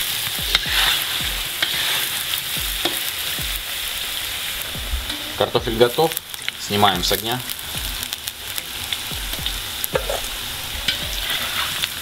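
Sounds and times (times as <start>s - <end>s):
potatoes sizzling in hot oil: 0.0s - 12.0s
spatula scraping and knocking pan: 9.9s - 10.3s.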